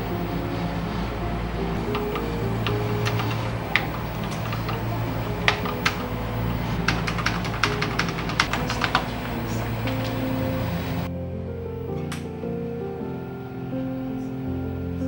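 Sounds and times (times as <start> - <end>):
background music: 0.0 - 15.0
computer keyboard keys clicking: 1.8 - 10.5.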